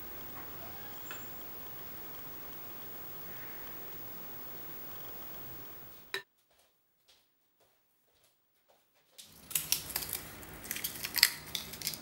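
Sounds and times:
gelatin sheet crackling: 9.2 - 12.0.

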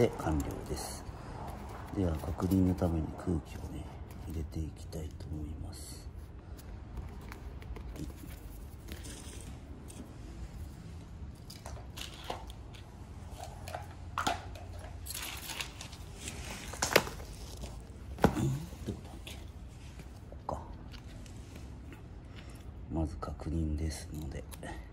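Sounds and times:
rubber tube rubbing and rustling: 6.0 - 13.8, 14.9 - 20.4.

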